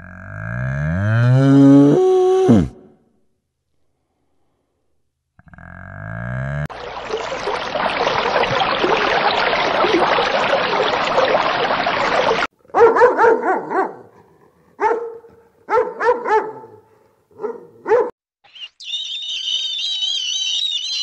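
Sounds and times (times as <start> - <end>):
dog barking: 12.6 - 18.2.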